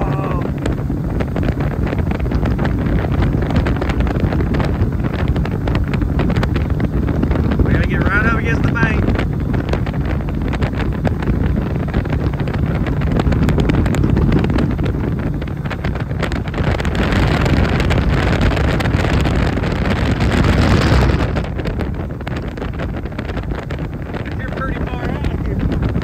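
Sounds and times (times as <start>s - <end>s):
boat motor running: 0.0s - 26.0s
wind buffeting microphone: 0.0s - 26.0s.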